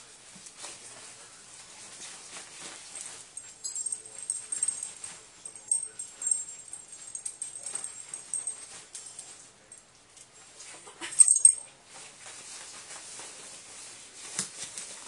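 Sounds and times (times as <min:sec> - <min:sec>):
pawing and rustling bedding: 0:00.0 - 0:09.5.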